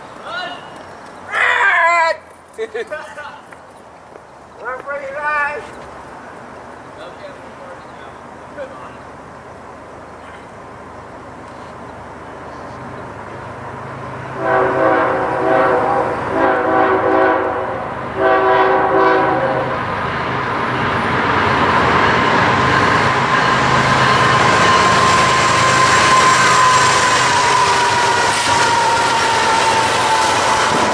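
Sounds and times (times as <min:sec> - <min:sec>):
train rumble: 0:01.9 - 0:30.9
train air horn blasts: 0:14.4 - 0:19.8, 0:24.3 - 0:30.9.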